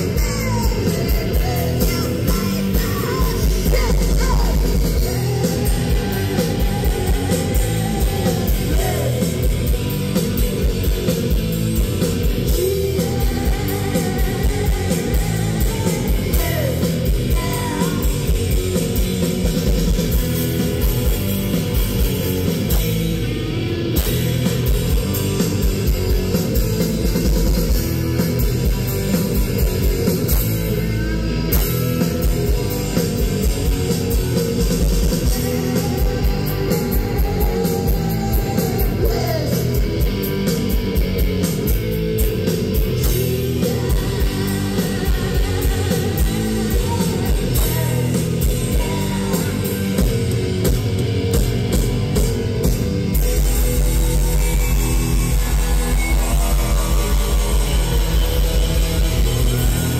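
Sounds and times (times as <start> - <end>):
distorted electric guitar: 0.0 - 59.9
rock band playing: 0.0 - 59.9
woman singing and shouting: 0.1 - 5.8.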